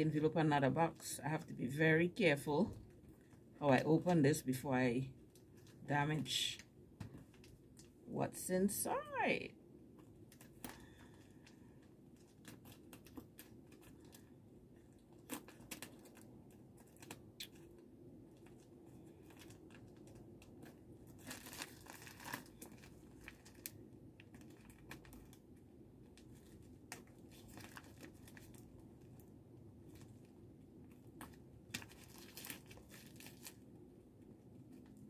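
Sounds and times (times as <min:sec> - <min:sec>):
plastic envelope rustling: 0:10.0 - 0:30.4, 0:31.0 - 0:33.7.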